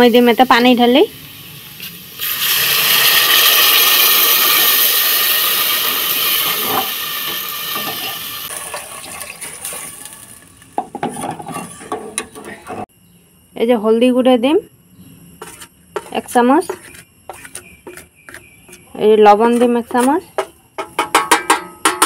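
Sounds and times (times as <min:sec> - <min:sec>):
loud sizzling hiss: 0:00.0 - 0:10.9.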